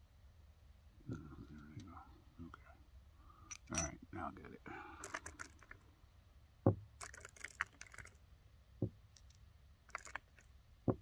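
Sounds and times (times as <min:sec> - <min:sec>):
short dull thumps: 0:06.6 - 0:07.0, 0:08.8 - 0:09.0
light clicking and rattling: 0:09.1 - 0:10.5.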